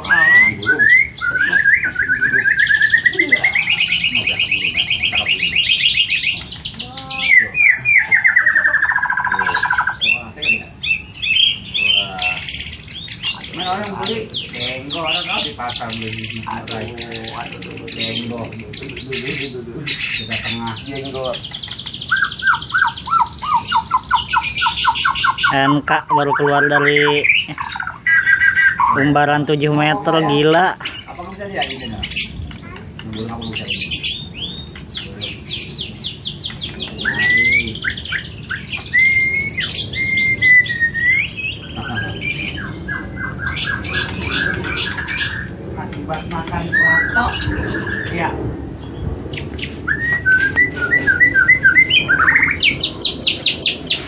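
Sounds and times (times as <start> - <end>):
bird singing high trills: 0.0 - 54.0.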